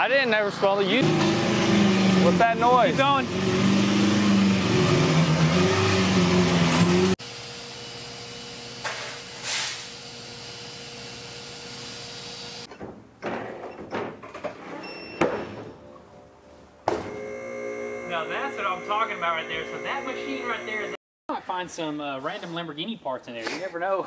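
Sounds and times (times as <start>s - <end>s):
steady hum: 17.1s - 21.0s.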